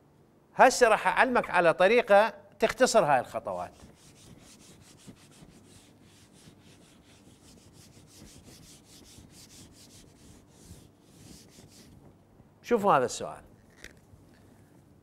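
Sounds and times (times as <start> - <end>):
eraser rubbing whiteboard: 3.5 - 12.1.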